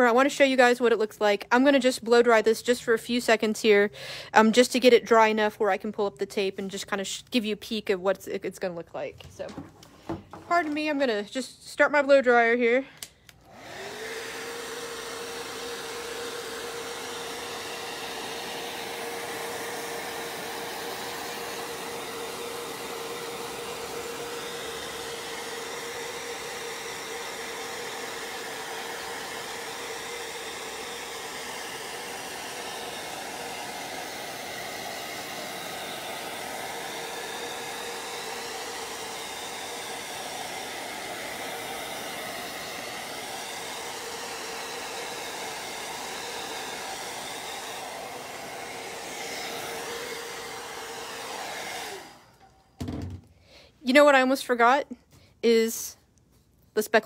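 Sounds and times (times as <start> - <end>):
hair dryer blowing: 0.0 - 54.8.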